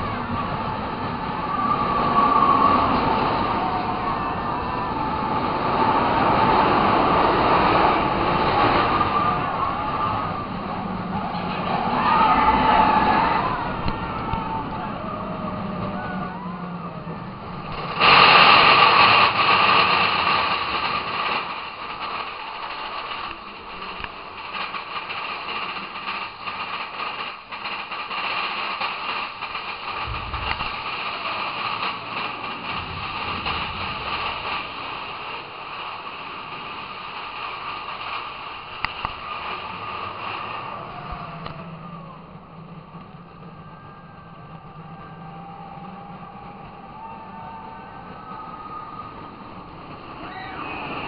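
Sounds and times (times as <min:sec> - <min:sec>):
roller coaster rumbling on track: 0:00.0 - 0:51.0
faint wheel squeals: 0:05.8 - 0:18.0, 0:39.1 - 0:51.0.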